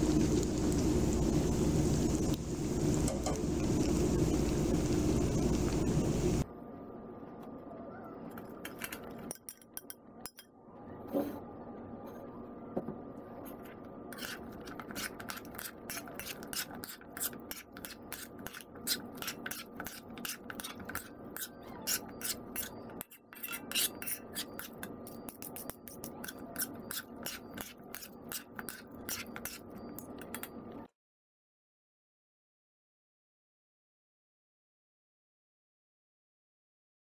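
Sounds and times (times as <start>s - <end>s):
metal utensils scraping a frying pan: 14.1s - 30.5s.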